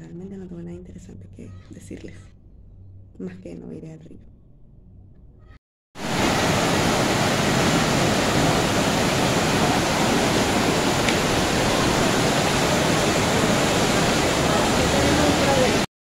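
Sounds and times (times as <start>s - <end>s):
heavy rain pouring: 6.0s - 15.9s.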